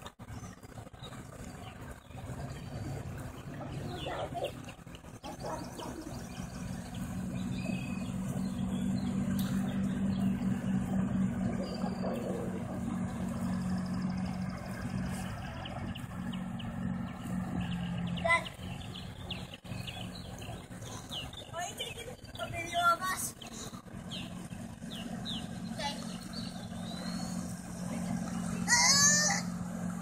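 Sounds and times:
outboard motor humming: 0:00.0 - 0:30.0.

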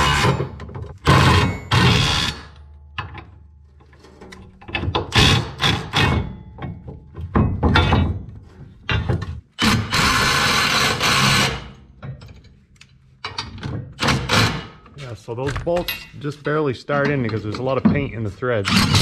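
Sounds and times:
metal knocks and clanks: 0:00.0 - 0:09.8, 0:11.8 - 0:19.0.

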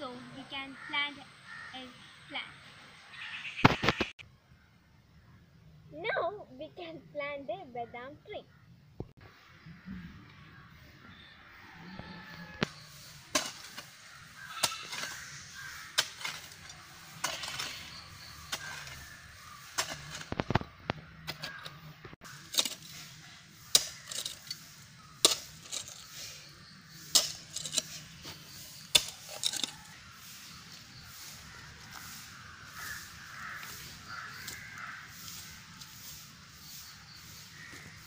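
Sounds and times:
gritty scrape of earth: 0:11.8 - 0:38.0
hoe chopping into soil: 0:13.3 - 0:20.6, 0:21.2 - 0:26.2, 0:27.0 - 0:30.0.

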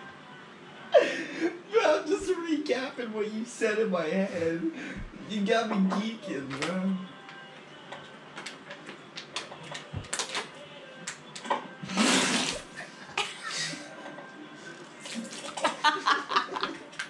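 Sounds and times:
water spray splatter: 0:11.9 - 0:12.7.

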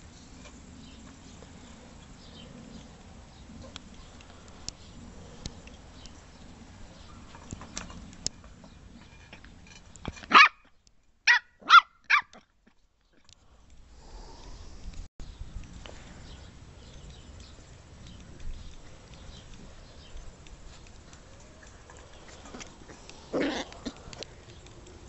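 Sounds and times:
puppy barking in high yaps: 0:10.3 - 0:10.6, 0:11.3 - 0:12.4.

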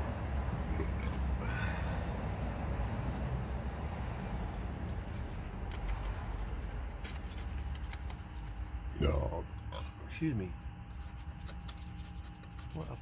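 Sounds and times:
steady low rumble: 0:00.0 - 0:12.8
peeling vinyl decal: 0:04.5 - 0:08.7, 0:10.9 - 0:13.0.

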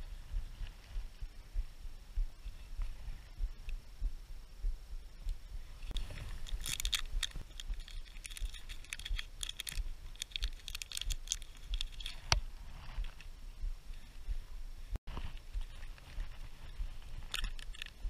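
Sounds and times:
plastic packet crinkling: 0:06.4 - 0:12.2.

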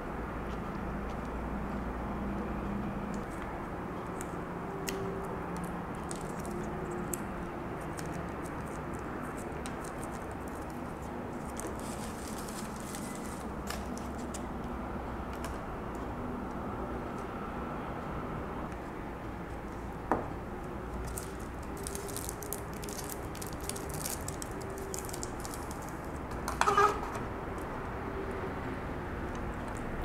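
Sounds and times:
plastic sachet crinkling: 0:07.9 - 0:14.3, 0:21.0 - 0:26.2.

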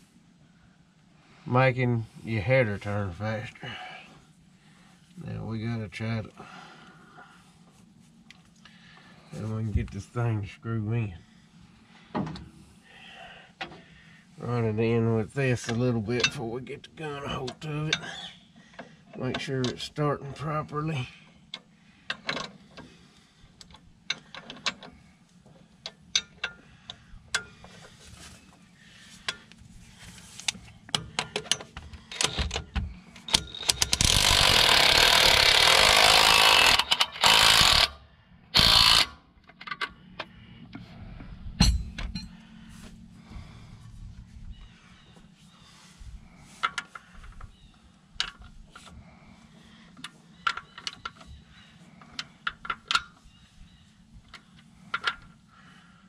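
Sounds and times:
impact wrench running: 0:33.2 - 0:39.2.

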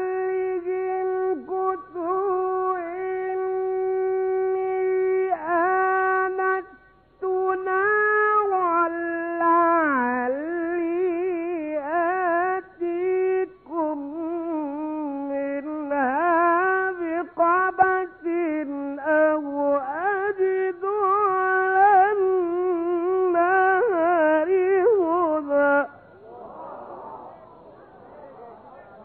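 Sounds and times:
man chanting unaccompanied: 0:00.0 - 0:26.4.

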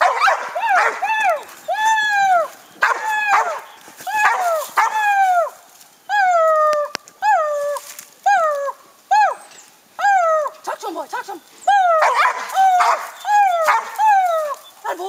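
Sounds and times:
dog barking: 0:00.0 - 0:01.0, 0:02.8 - 0:05.0, 0:12.0 - 0:14.0.

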